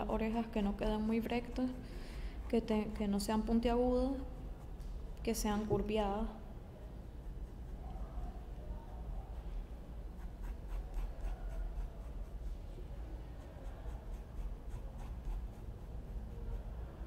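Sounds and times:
pencil scratching on paper: 0:07.1 - 0:08.4, 0:10.0 - 0:17.0.

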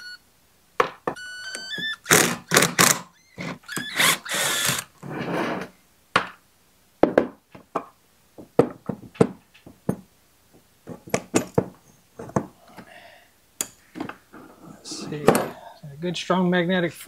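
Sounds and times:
cordless power driver spinning: 0:01.2 - 0:04.9.

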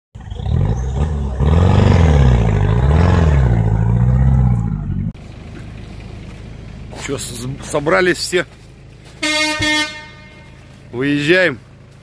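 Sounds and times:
engine revving: 0:00.2 - 0:05.3.

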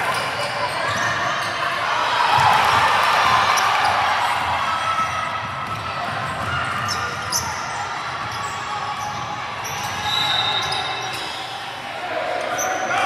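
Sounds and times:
crowd noise in a gym: 0:00.0 - 0:13.0
basketball bouncing on a court: 0:02.4 - 0:10.1.

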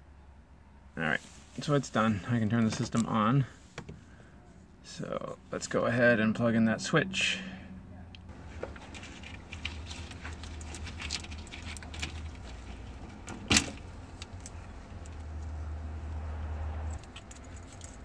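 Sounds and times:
keys jangling: 0:17.0 - 0:18.0
small rattling clicks: 0:17.0 - 0:18.0.

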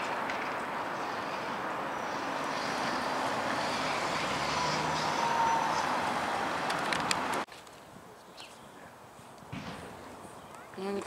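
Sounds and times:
passing motor traffic: 0:00.0 - 0:07.5
quiet outdoor background: 0:00.0 - 0:11.0.

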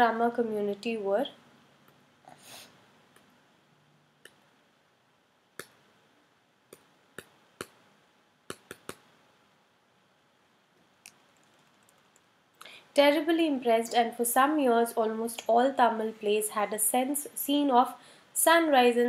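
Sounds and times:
computer mouse clicking: 0:11.0 - 0:12.3.

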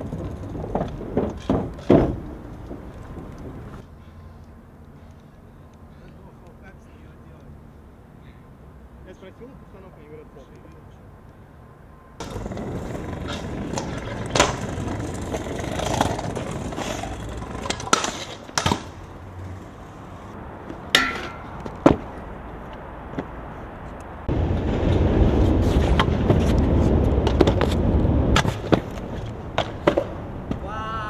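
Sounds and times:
scooter deck clacking on ground: 0:00.0 - 0:03.8, 0:12.2 - 0:19.1, 0:20.7 - 0:22.2, 0:25.6 - 0:30.6
scooter wheels rolling on concrete: 0:00.0 - 0:05.6, 0:12.2 - 0:31.0.

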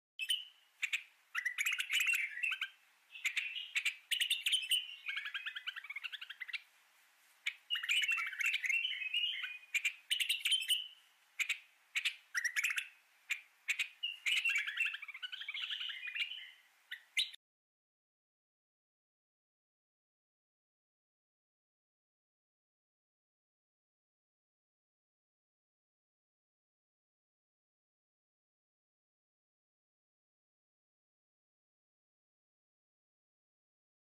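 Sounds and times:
songbirds chirping and trilling: 0:00.2 - 0:17.4.

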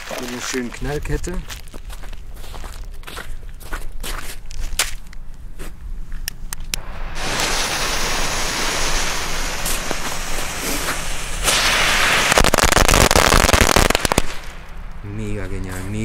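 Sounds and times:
firecrackers crackling: 0:00.0 - 0:01.0, 0:06.8 - 0:15.3
fuse hissing: 0:06.8 - 0:12.8.

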